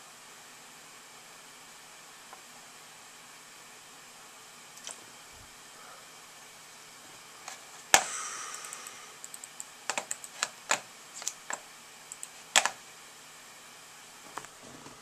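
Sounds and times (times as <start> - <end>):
keyboard key taps: 9.9 - 11.6.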